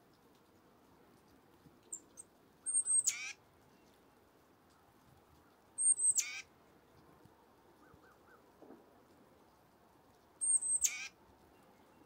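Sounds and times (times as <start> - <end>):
titmouse calling: 2.6 - 3.4, 10.4 - 11.1.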